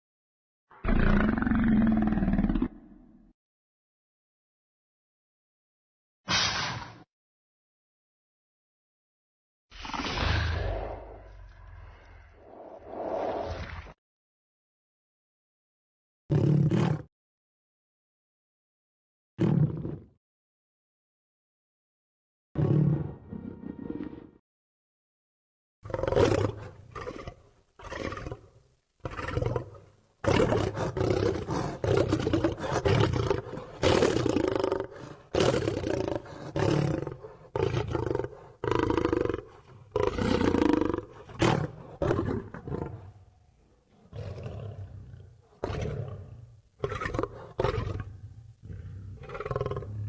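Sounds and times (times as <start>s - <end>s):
dinosaur roars: 44.0s - 50.0s.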